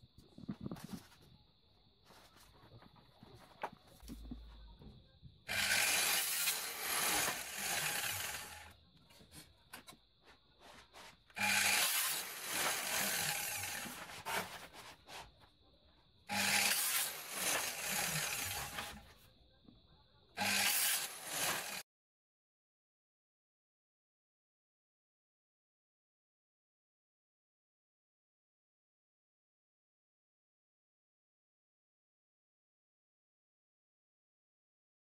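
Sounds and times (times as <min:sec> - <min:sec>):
mitre saw cutting plastic: 0:05.5 - 0:08.8, 0:10.6 - 0:15.3, 0:16.3 - 0:19.1, 0:20.4 - 0:21.8.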